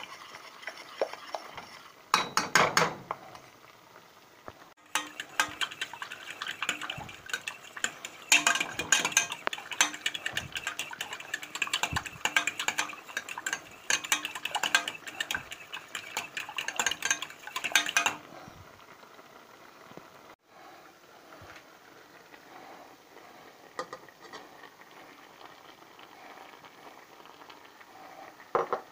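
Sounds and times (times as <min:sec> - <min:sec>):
metal spoon scraping saucepan: 0:04.8 - 0:18.3.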